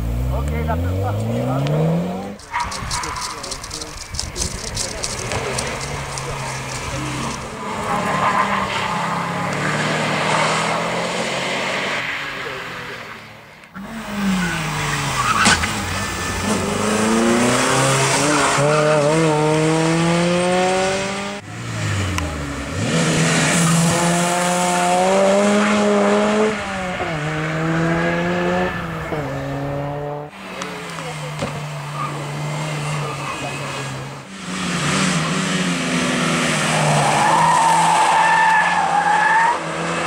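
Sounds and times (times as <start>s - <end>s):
car engines revving: 0.0s - 40.0s.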